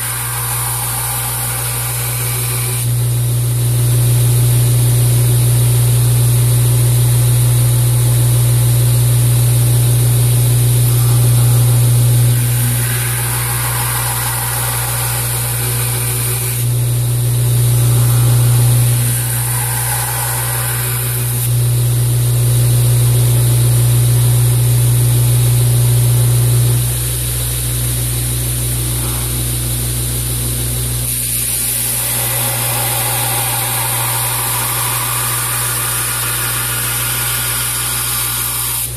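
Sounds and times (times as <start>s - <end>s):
blade grinding on abrasive belt: 0.0s - 3.0s, 10.7s - 21.8s, 31.0s - 38.9s
belt grinder motor hum: 0.0s - 3.2s, 10.4s - 22.3s, 31.0s - 38.9s.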